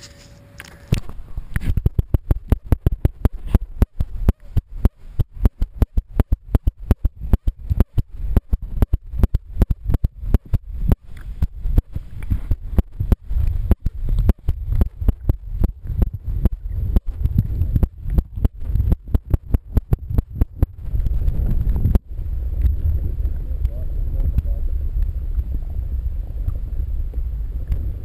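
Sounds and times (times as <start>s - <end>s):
muffled low underwater rumble: 0.0s - 28.0s
underwater clicks and knocks: 0.9s - 22.0s.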